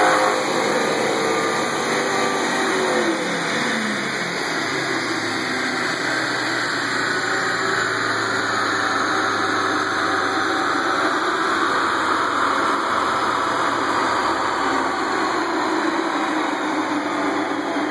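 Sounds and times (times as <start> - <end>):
high whine falling in pitch: 0.0 - 17.9
machinery droning: 0.0 - 17.9.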